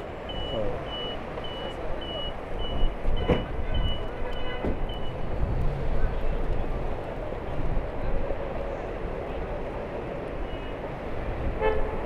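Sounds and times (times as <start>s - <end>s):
crowd noise: 0.0s - 12.0s
traffic: 0.0s - 12.0s
reversing alarm beeping: 0.2s - 4.1s, 4.8s - 5.2s.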